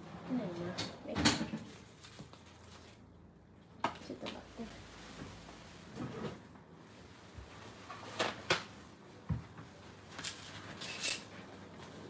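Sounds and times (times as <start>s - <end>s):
kitchen knocks and rustles: 0.6s - 2.4s.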